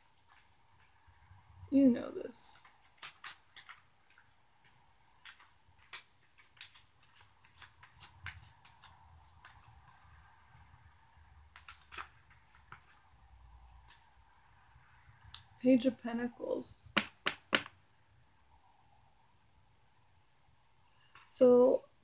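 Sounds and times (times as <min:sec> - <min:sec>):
cards being shuffled: 0:00.1 - 0:01.2, 0:02.6 - 0:10.7, 0:11.5 - 0:13.0.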